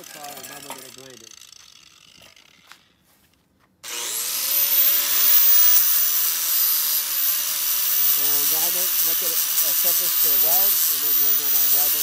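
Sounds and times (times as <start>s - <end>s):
angle grinder grinding steel: 3.8s - 12.0s.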